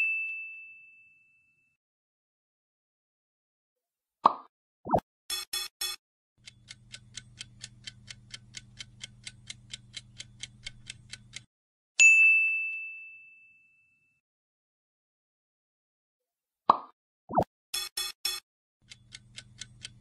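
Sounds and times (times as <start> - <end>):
countdown timer ticking: 5.3 - 11.5, 17.8 - 20.0
bright bell ding: 12.0 - 14.2.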